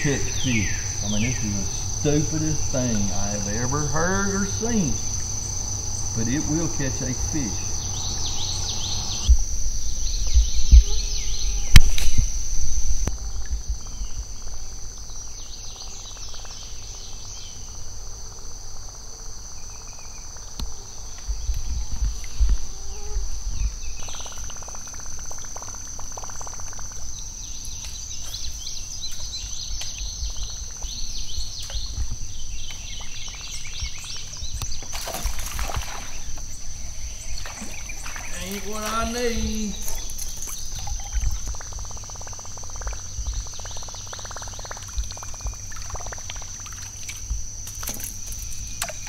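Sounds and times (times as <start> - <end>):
insects droning: 0.0 - 49.0
bird chirps: 6.0 - 9.3
low thumps and rumble: 8.1 - 14.0
water splashing: 34.9 - 41.8.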